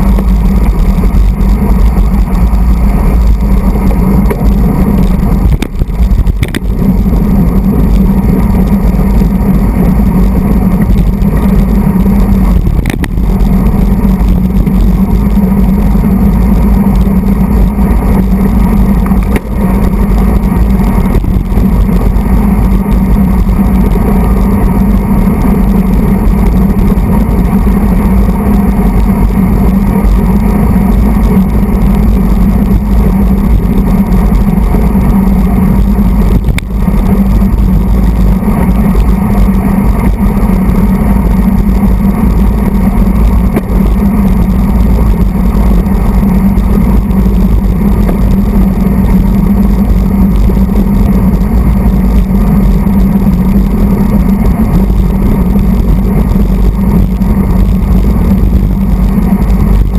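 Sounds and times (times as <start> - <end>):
wind buffeting microphone: 0.0 - 59.9.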